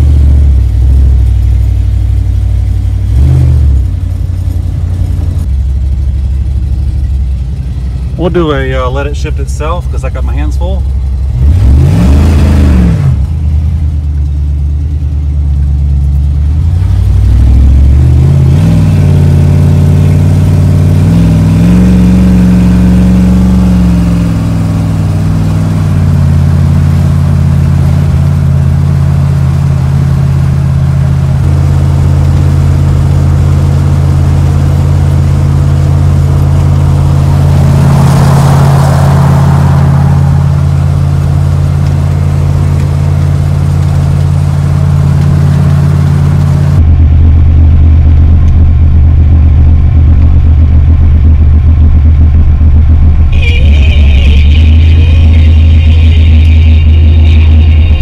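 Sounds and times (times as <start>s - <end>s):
pickup engine revving through gears: 3.0s - 5.4s, 8.1s - 13.5s, 16.6s - 47.0s
road noise of passing pickup: 34.1s - 46.8s.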